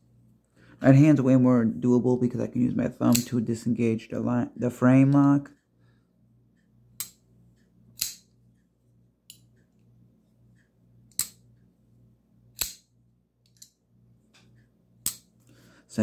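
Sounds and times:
folding knife clicking: 3.1s - 3.3s, 8.0s - 8.3s, 11.1s - 11.4s, 12.6s - 12.8s.

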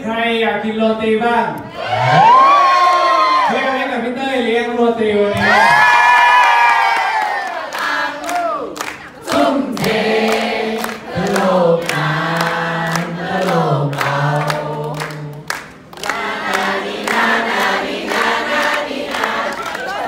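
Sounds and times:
people clapping in time: 6.3s - 20.0s
group of people singing: 7.4s - 20.0s.

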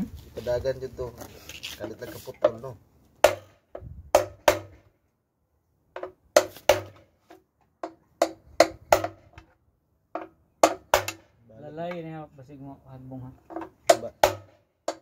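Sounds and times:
tools knocking on engine metal: 10.1s - 11.2s, 13.5s - 15.0s.

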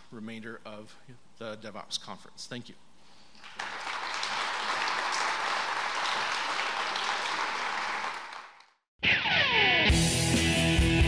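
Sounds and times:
audience applauding: 3.4s - 8.8s.

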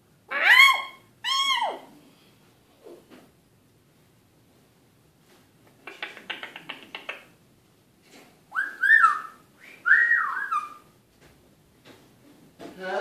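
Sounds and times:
parrot clicking: 5.7s - 7.3s
parrot whistles gliding in pitch: 8.5s - 10.9s.

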